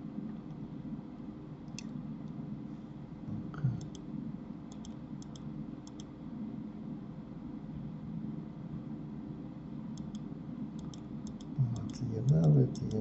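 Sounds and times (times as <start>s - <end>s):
steady low hum: 0.0s - 13.0s
computer mouse clicking: 1.7s - 2.4s, 3.8s - 4.1s, 4.7s - 6.1s, 9.9s - 13.0s.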